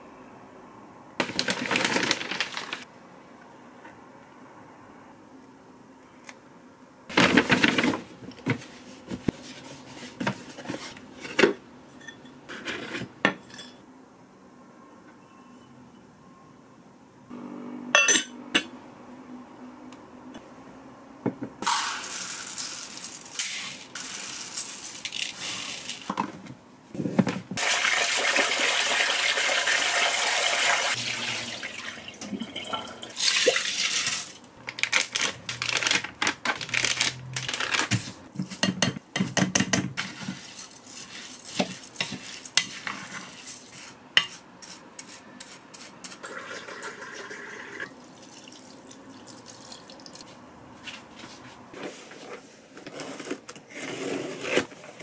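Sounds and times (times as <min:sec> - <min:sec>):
rice grains rattling into pot: 0:21.6 - 0:26.1
water poured from cup: 0:46.2 - 0:50.2.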